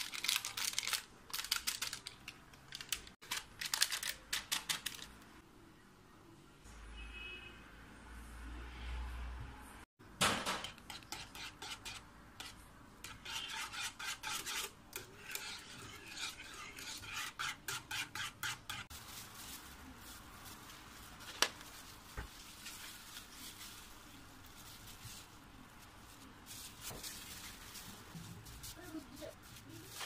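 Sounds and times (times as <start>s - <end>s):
whisk scraping in pot: 10.6s - 18.9s.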